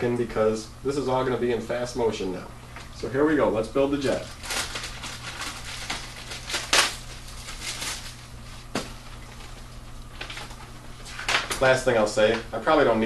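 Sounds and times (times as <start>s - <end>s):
plastic bags and paper crinkling: 4.0s - 12.4s.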